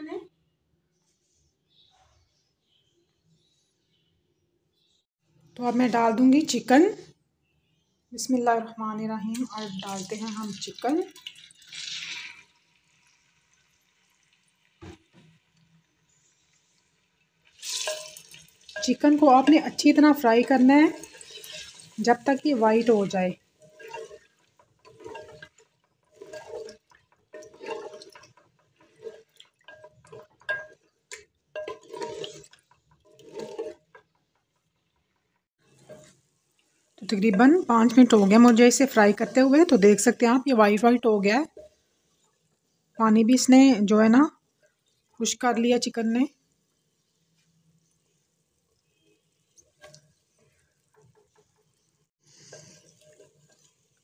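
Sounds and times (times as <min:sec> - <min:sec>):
soft sizzle of cooking meat: 0:07.9 - 0:54.0
wooden spoon scraping clay pot: 0:17.6 - 0:34.7, 0:35.6 - 0:36.3, 0:37.0 - 0:41.8, 0:48.8 - 0:54.0.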